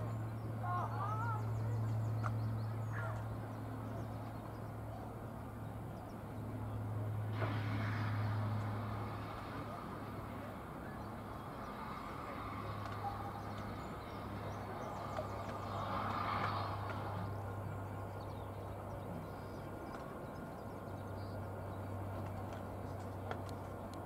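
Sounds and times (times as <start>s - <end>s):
steam locomotive rumbling: 5.2s - 24.0s.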